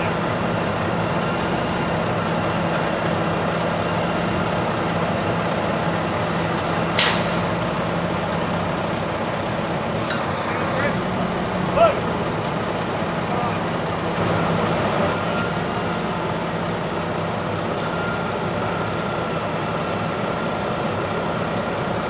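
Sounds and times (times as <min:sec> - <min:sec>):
diesel truck engine running: 0:00.0 - 0:22.0
air brake hiss: 0:07.0 - 0:07.5.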